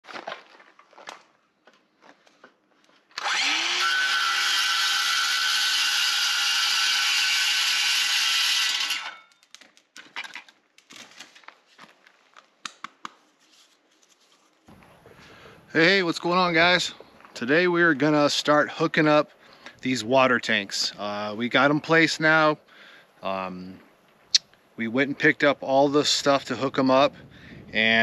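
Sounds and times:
circular saw cutting pipe: 0:03.2 - 0:09.4
pipe pieces clicking and knocking: 0:09.3 - 0:11.2.

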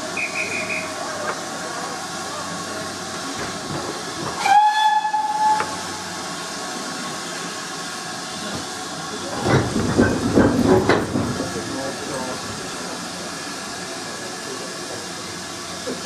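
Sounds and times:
steam hissing: 0:00.0 - 0:16.0
steam whistle: 0:00.2 - 0:01.0, 0:04.4 - 0:05.8.

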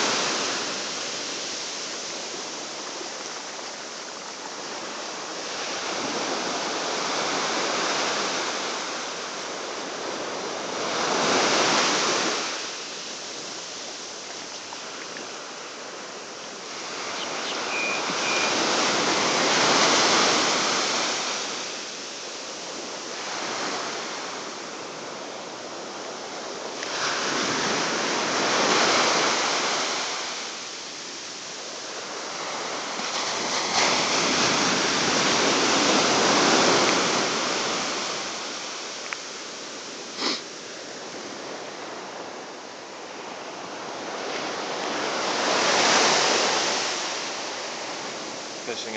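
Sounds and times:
ocean surf breaking: 0:00.0 - 0:48.9.

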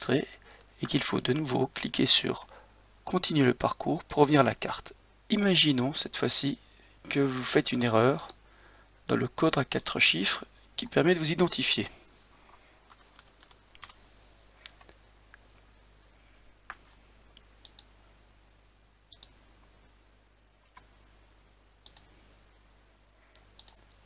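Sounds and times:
typing clicks: 0:17.6 - 0:17.9, 0:19.1 - 0:19.4, 0:21.8 - 0:22.1, 0:23.4 - 0:23.9.

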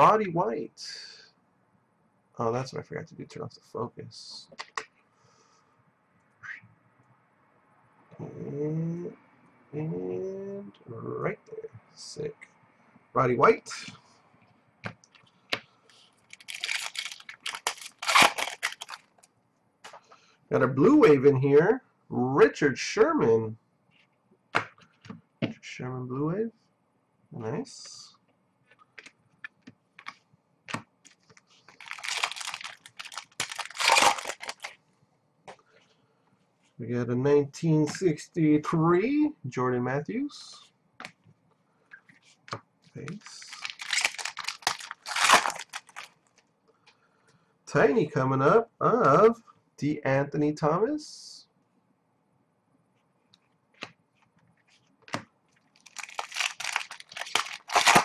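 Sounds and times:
foil pack crinkling and tearing: 0:16.2 - 0:19.2, 0:31.7 - 0:34.8, 0:43.2 - 0:46.3, 0:55.7 - 0:58.0.

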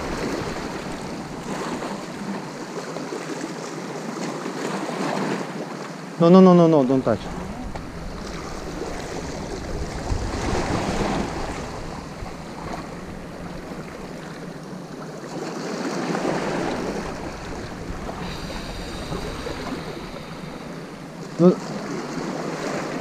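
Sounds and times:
wind buffeting microphone: 0:00.0 - 0:02.6, 0:06.8 - 0:15.1, 0:16.1 - 0:23.0
sea waves washing onto shore: 0:00.0 - 0:23.0.

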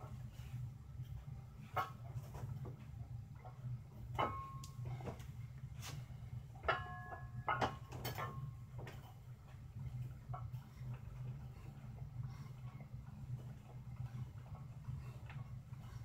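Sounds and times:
steady low hum: 0:00.0 - 0:16.0
dumbbell plates clanking: 0:06.6 - 0:09.2.

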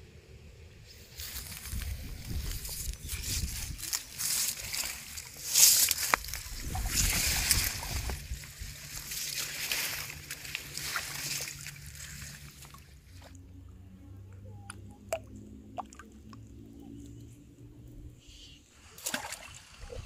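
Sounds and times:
water splashing and sloshing: 0:01.2 - 0:17.0, 0:18.7 - 0:20.0
faint ticks and drips: 0:14.3 - 0:17.2.

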